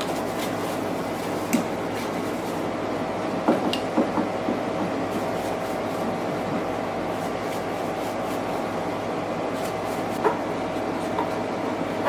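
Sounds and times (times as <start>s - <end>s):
steady background hum: 0.0s - 12.0s
cloth rag wiping metal panel: 5.0s - 6.5s.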